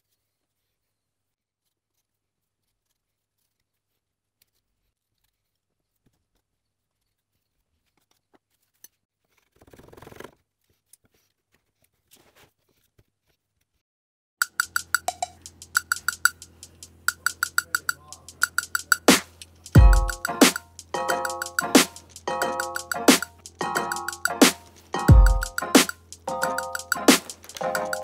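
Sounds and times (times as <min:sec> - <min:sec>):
faint ticks and clicks: 0:14.4 - 0:23.5.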